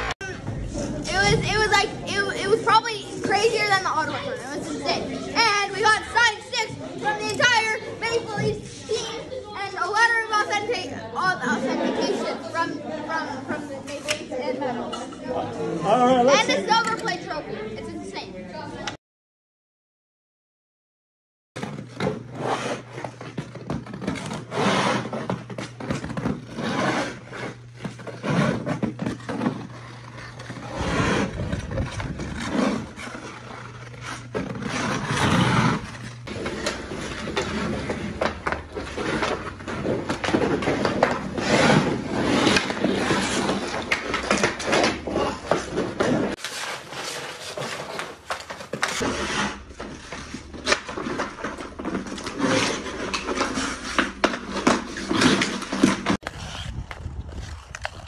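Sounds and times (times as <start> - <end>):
ice skate blades scraping ice: 21.7 - 58.0.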